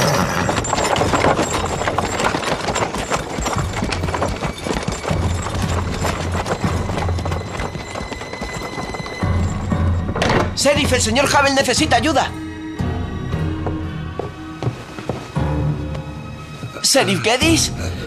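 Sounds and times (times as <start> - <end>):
horse hooves clopping: 0.0 - 16.8
low music score: 9.0 - 18.0.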